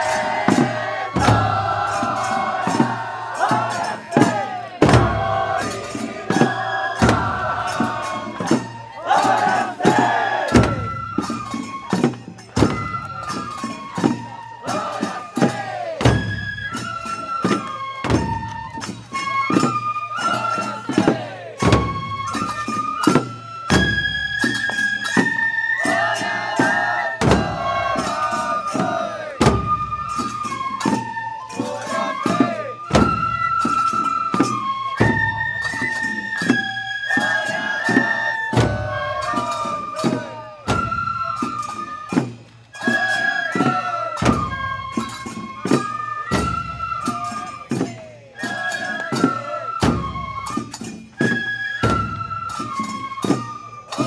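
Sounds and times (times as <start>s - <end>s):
taiko drum strikes: 0.0s - 11.1s
flute melody: 0.0s - 54.0s.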